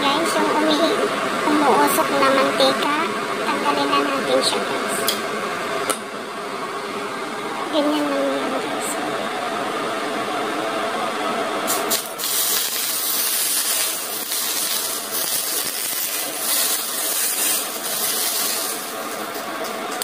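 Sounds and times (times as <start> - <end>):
steady hum: 0.0 - 20.0
hot oil sizzling on fish: 11.7 - 20.0.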